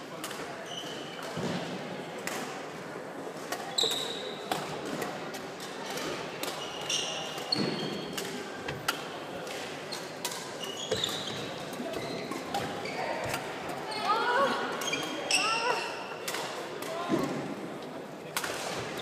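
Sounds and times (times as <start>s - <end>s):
shoes squeaking on wooden floor: 10.6s - 13.3s.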